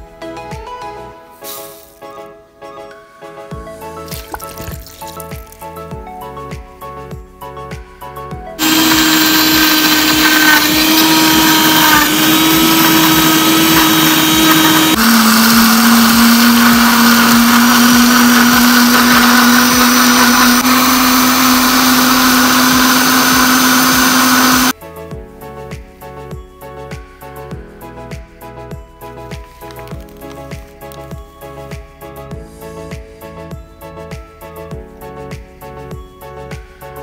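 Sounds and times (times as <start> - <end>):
electric blender running: 8.6 - 24.7.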